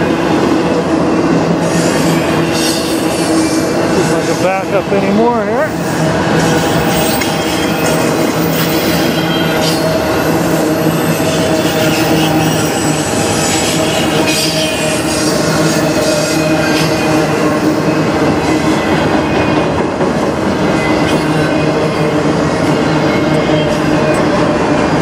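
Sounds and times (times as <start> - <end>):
train wheels rumbling on rail: 0.0 - 25.0
squealing wheels: 5.8 - 19.7.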